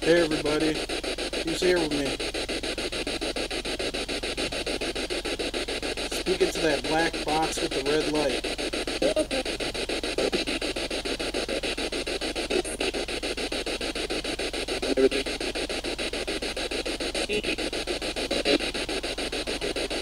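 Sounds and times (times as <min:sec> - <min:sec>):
voice-like radio fragment: 0:00.0 - 0:02.3, 0:06.0 - 0:10.7, 0:12.4 - 0:13.1, 0:14.7 - 0:15.4, 0:17.1 - 0:20.0
radio scanner static chopping: 0:00.0 - 0:20.0.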